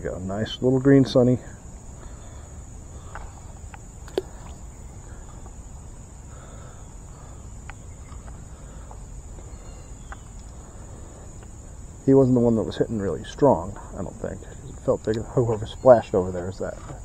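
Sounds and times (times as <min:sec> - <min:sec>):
faint outdoor rumble: 0:00.0 - 0:17.0
insects droning: 0:00.0 - 0:17.0
faint ticks: 0:03.0 - 0:04.6, 0:06.9 - 0:11.7.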